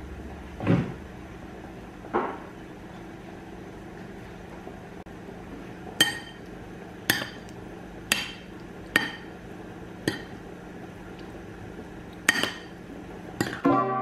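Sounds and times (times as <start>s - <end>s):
steady low hum: 0.0s - 14.0s
metal spoon clinking ceramic bowl: 12.3s - 12.7s.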